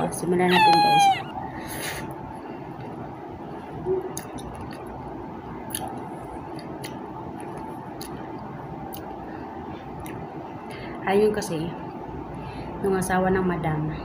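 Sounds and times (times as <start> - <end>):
person chewing soft fruit: 5.7 - 9.1.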